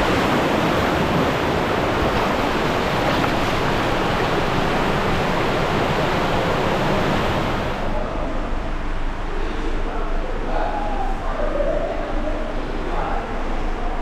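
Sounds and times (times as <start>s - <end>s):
water rushing on a slide: 0.0s - 7.9s.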